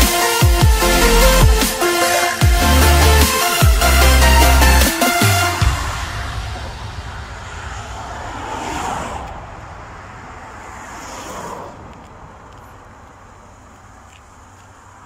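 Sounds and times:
cars whooshing past: 0.8s - 15.0s
wind rumble on microphone: 5.6s - 12.7s.

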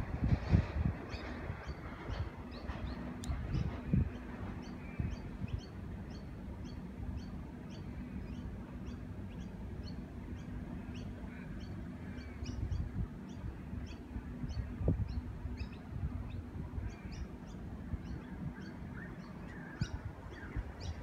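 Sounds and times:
low hum and rumble: 0.0s - 21.0s.

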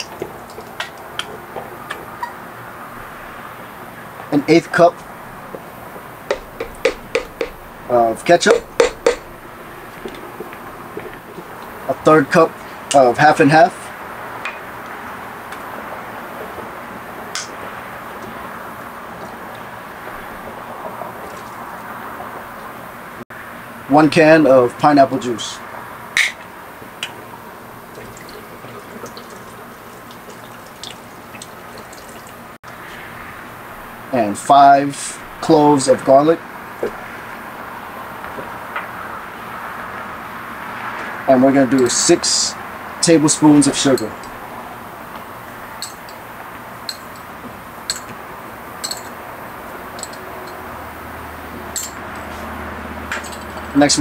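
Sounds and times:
steady background hiss: 0.0s - 54.0s
juice pouring and dripping: 5.4s - 12.8s, 20.2s - 21.9s, 27.0s - 32.6s
sugar tapped into blender jar: 6.3s - 7.6s.

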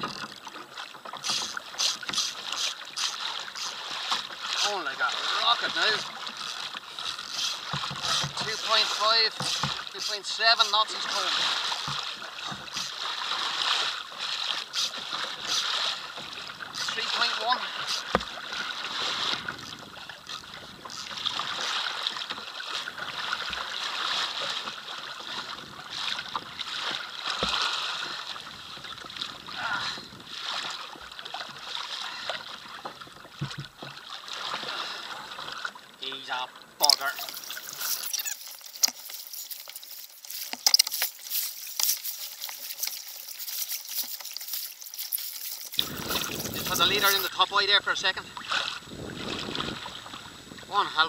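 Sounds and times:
water rushing along a hull: 0.0s - 51.0s
dull knocks from boat: 7.6s - 8.6s, 32.9s - 34.0s.

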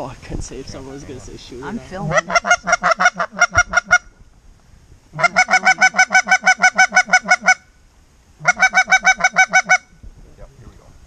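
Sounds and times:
goose call honking clucks: 2.0s - 4.1s, 5.2s - 7.6s, 8.4s - 9.9s.

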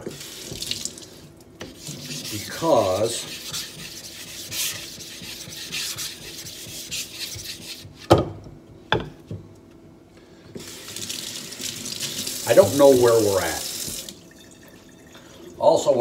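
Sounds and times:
block scraping on wet whetstone: 1.6s - 8.0s.

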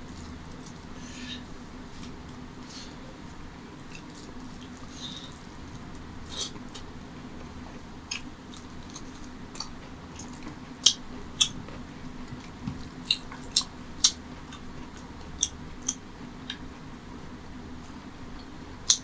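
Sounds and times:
low steady hum: 0.0s - 19.0s
wet eating and chewing: 3.8s - 16.7s.

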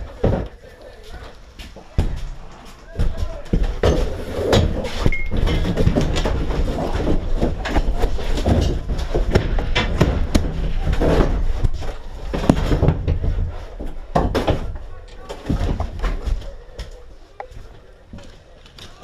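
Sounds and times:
rustling: 0.0s - 19.0s
knocks and thuds: 1.9s - 16.3s.

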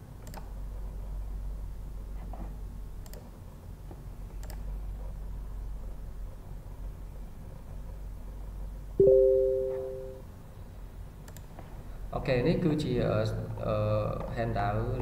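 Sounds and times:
computer mouse clicks: 0.2s - 0.5s, 3.0s - 3.3s, 4.4s - 4.7s, 11.2s - 11.5s.

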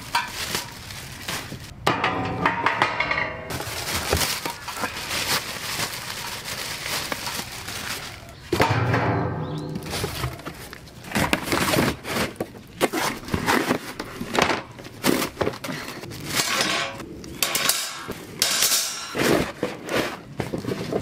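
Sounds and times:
cardboard and plastic crinkling: 0.0s - 1.8s, 3.5s - 8.6s, 9.8s - 17.0s, 19.1s - 21.0s
metal grill parts clattering: 1.8s - 5.2s, 7.2s - 12.3s, 16.3s - 19.6s.

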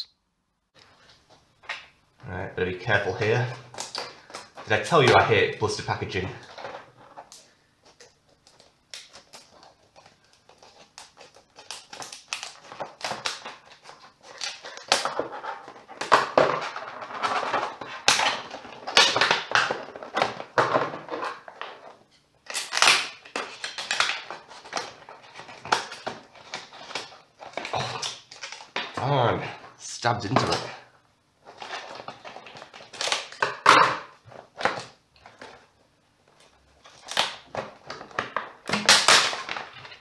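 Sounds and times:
stiff plastic crackling: 0.8s - 40.0s
scissors cutting plastic: 8.0s - 20.4s, 22.4s - 28.8s, 36.8s - 40.0s.

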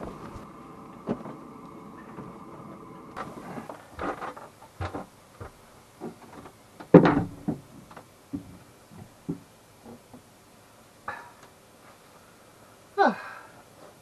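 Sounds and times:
hatch knocking and clunking: 3.2s - 10.3s.

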